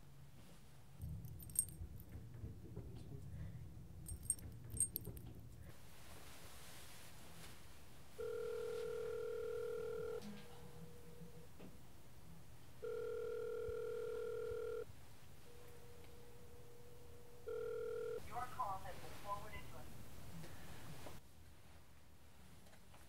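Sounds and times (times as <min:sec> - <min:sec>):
telephone ringback tone: 0:08.2 - 0:10.4, 0:12.8 - 0:14.9, 0:17.4 - 0:18.2.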